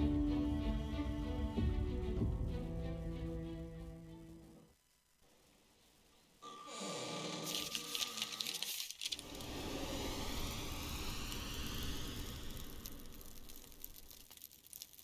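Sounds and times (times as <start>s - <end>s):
low noisy whoosh: 9.2s - 14.2s.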